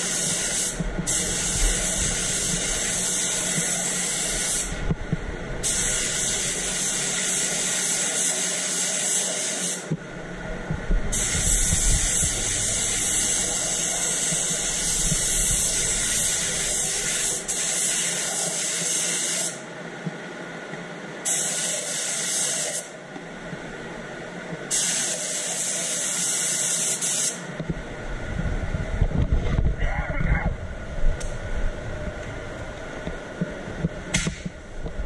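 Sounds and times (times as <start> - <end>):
air spray gun hissing: 0.0 - 4.8, 5.6 - 9.9, 11.1 - 19.6, 21.2 - 22.9, 24.7 - 27.4
steady background drone: 0.0 - 8.2, 8.9 - 18.7, 27.4 - 35.0.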